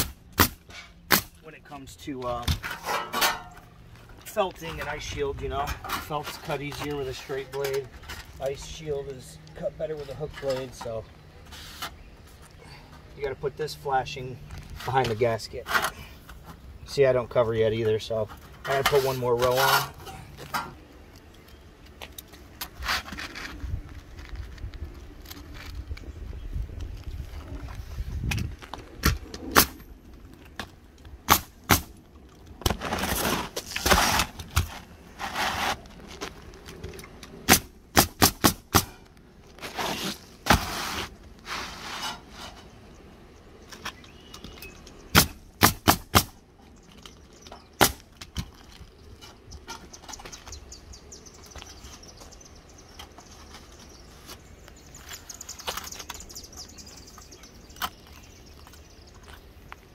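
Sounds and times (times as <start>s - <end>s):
scraping noises: 2.2s - 13.0s, 17.6s - 20.8s, 22.2s - 26.0s, 32.6s - 37.2s, 39.5s - 42.9s
nail gun shots: 31.3s - 32.0s, 37.5s - 39.0s, 45.1s - 46.4s, 47.8s - 48.0s.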